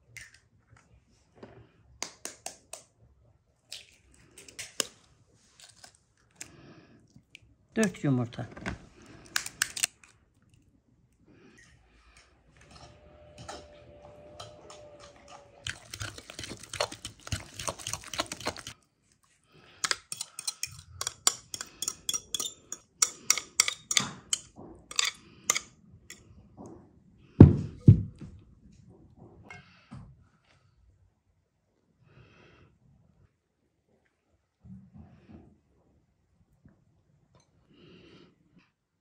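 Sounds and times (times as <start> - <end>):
fork beating eggs in glass bowl: 14.4 - 18.8, 19.8 - 25.7
fork tapping on bowl: 19.8 - 25.6
heavy thud: 27.4 - 28.2.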